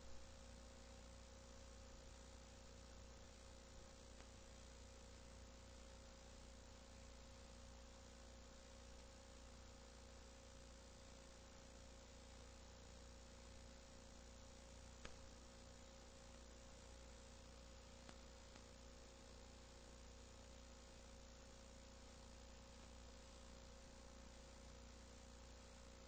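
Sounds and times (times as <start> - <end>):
electrical hum with hiss: 0.0 - 26.0.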